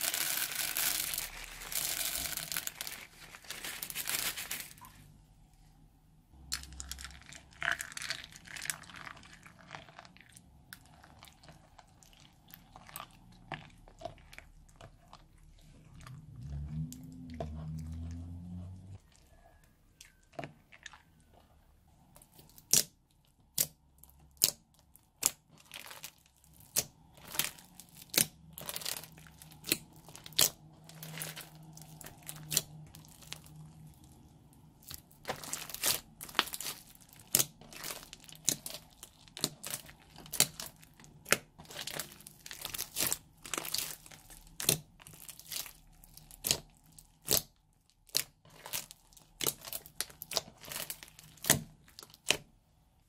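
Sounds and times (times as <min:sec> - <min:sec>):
slime popping and crackling: 0:00.0 - 0:04.9, 0:22.2 - 0:52.5.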